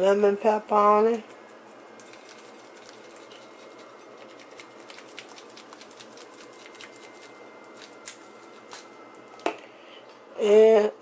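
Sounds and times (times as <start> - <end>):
seasoning shaker pattering: 1.2 - 8.9.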